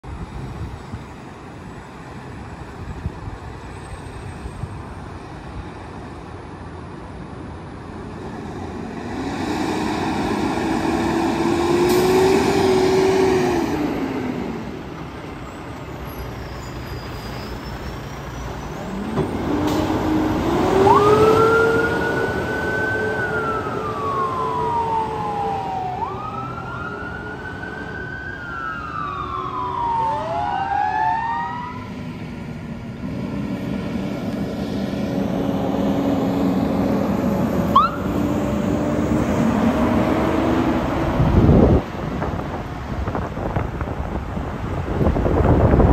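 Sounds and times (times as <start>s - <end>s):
truck engine rumbling: 0.0s - 30.8s, 31.6s - 45.9s
high siren wailing: 20.0s - 32.0s, 37.7s - 38.2s.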